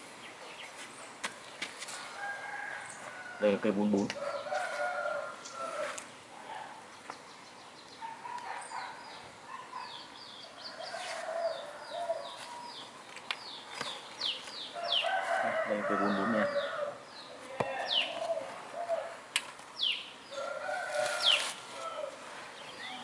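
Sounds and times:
small birds chirping: 0:00.0 - 0:23.0
roosters crowing: 0:01.8 - 0:06.1, 0:08.1 - 0:13.0, 0:14.6 - 0:22.6.

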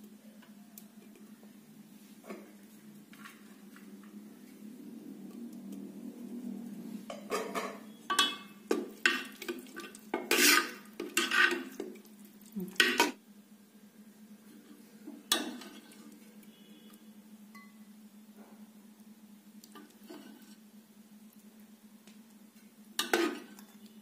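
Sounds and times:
metal ladle scraping a pot: 0:07.4 - 0:11.8, 0:19.8 - 0:20.6, 0:23.0 - 0:23.7.

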